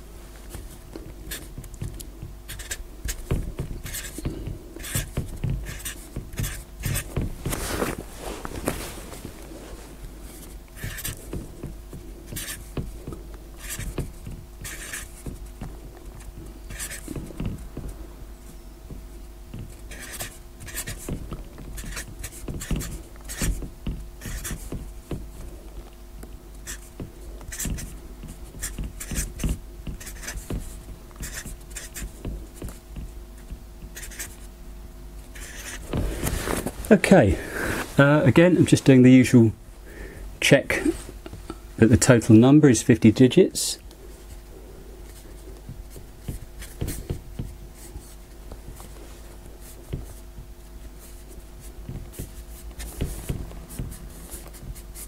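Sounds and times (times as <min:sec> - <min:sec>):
faint steady hum: 0:00.0 - 0:55.0
marker pen squeaking on board: 0:01.3 - 0:07.3, 0:10.8 - 0:11.7, 0:12.3 - 0:15.5, 0:16.1 - 0:17.6, 0:19.5 - 0:25.2, 0:26.6 - 0:32.8, 0:33.4 - 0:34.5, 0:35.3 - 0:35.9.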